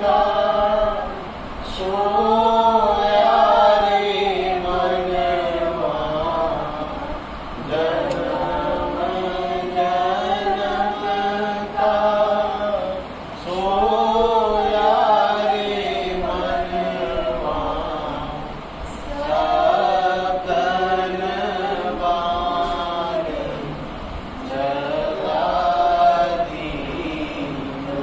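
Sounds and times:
group chanting in unison: 0:00.0 - 0:28.0.

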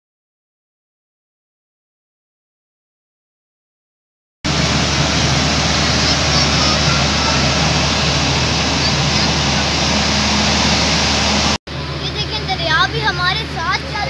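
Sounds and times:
low hum: 0:04.5 - 0:13.2
loud rushing noise: 0:04.5 - 0:13.4.

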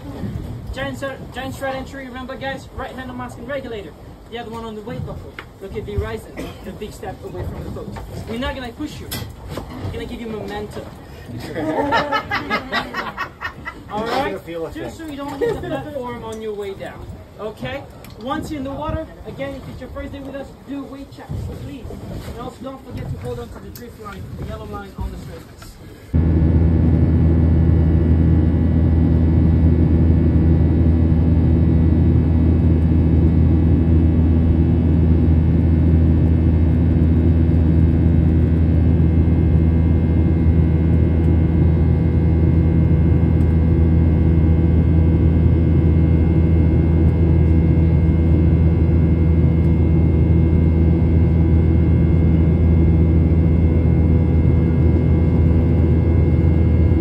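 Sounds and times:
airliner engine rumble: 0:00.0 - 0:57.0
faint even hum: 0:26.0 - 0:57.0.

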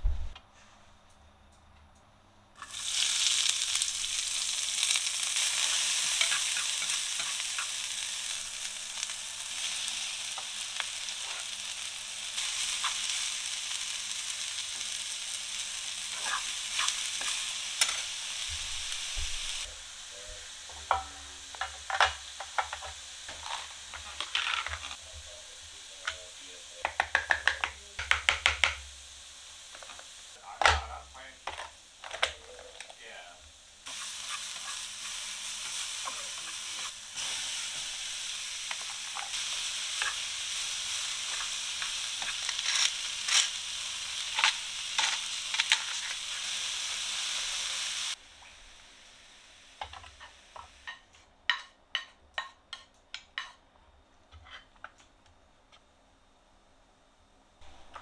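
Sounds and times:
vegetables sizzling in frying pan: 0:02.6 - 0:53.6, 0:57.6 - 0:58.0
chopsticks clicking against pan: 0:26.8 - 0:28.8.

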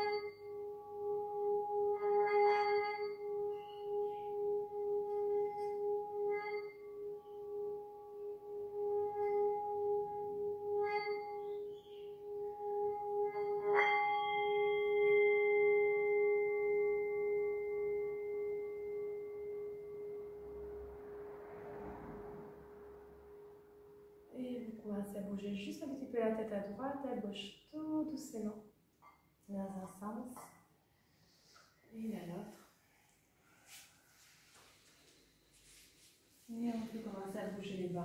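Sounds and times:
singing bowl ringing tone: 0:00.0 - 0:24.9.

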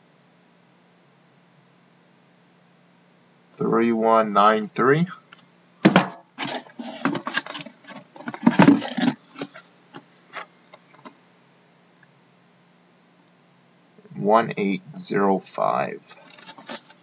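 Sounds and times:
faint steady hum: 0:00.0 - 0:17.0
card box handled: 0:05.9 - 0:09.6.

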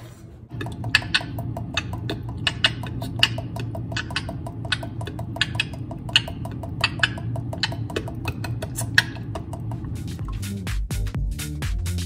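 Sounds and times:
beatboxing mouth clicks: 0:00.6 - 0:10.8
hissing beatbox snare: 0:05.4 - 0:12.0.

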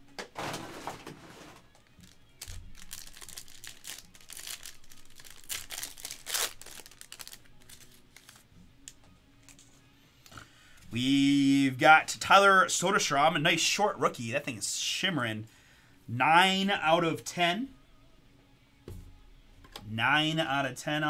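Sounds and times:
foil wrapper tearing and crinkling: 0:01.7 - 0:08.4.

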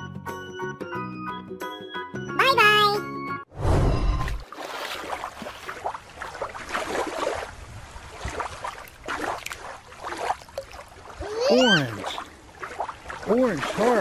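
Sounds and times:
water sloshing and trickling: 0:04.1 - 0:14.0
small splashes: 0:04.3 - 0:14.0.

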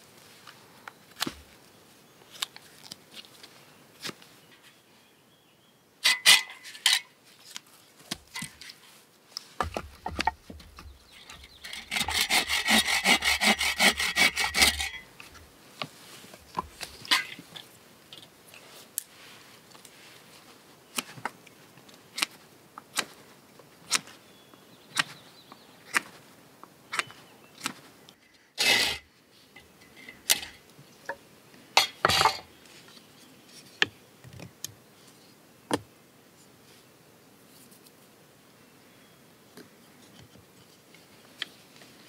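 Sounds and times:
wood knocks: 0:09.6 - 0:11.0
knife whittling wood: 0:09.6 - 0:15.1
saw cutting wood: 0:11.5 - 0:15.0.

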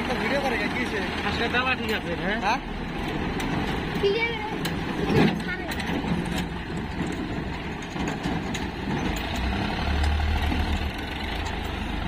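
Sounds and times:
diesel tractor engine running: 0:00.0 - 0:12.0.

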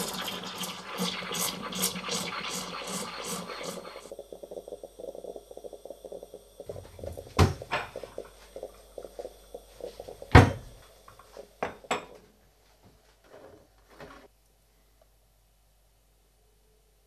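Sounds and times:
coffee maker sputtering and gurgling: 0:00.0 - 0:12.2.

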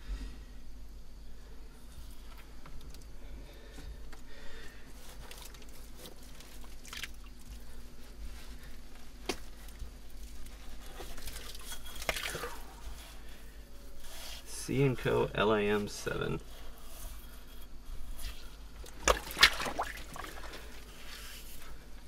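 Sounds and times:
small clicks and crunches: 0:05.0 - 0:07.8
hands squelching in wet mud: 0:06.2 - 0:07.7, 0:11.2 - 0:12.8, 0:18.3 - 0:21.0
glass bottle scraping in mud: 0:11.1 - 0:12.7.

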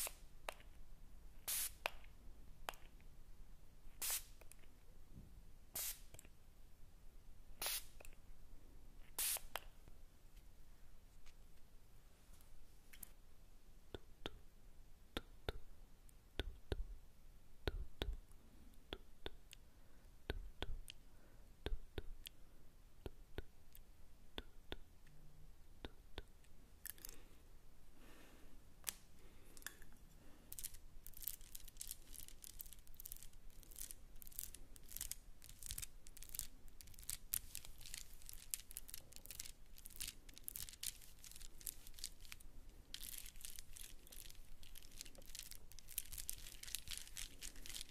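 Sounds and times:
crisp crackling clicks: 0:30.6 - 0:47.9.

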